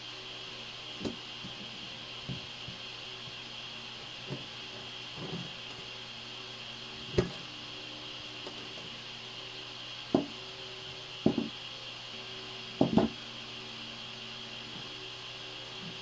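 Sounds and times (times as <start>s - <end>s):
steady background hum: 0.0s - 16.0s
knife knocking on cutting board: 11.2s - 11.5s.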